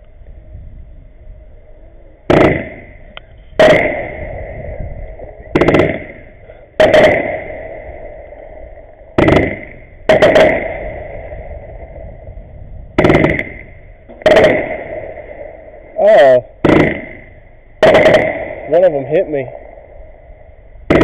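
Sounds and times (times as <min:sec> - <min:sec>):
fireworks bursting: 0:02.3 - 0:11.9, 0:13.0 - 0:19.7.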